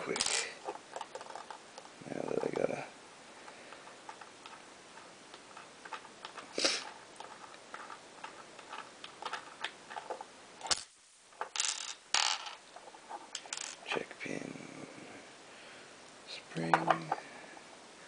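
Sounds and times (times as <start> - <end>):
lock metal clicks and scrapes: 3.8 - 10.8.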